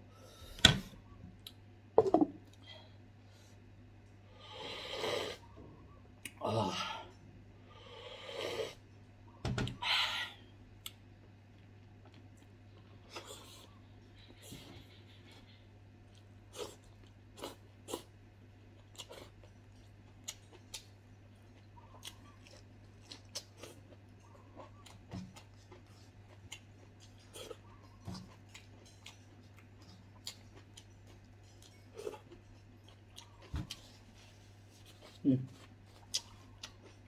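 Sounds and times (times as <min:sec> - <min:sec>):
faint low hum: 0:00.0 - 0:37.0
person chewing food: 0:10.7 - 0:37.0.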